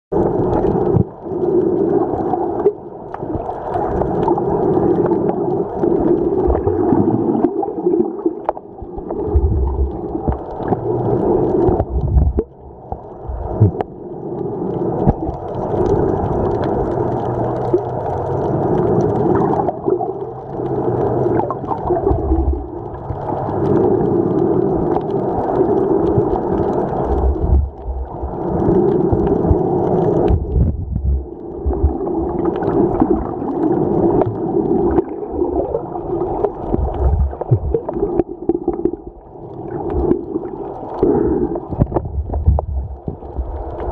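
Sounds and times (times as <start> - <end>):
underwater water sloshing: 0.2 - 43.9
dull low thumps: 27.2 - 28.1, 30.3 - 32.0, 41.8 - 43.2.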